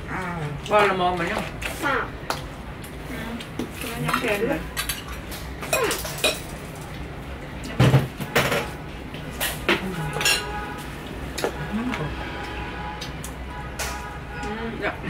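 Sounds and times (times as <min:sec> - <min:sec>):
spoons clinking on plates: 0:04.0 - 0:06.6, 0:10.1 - 0:10.6.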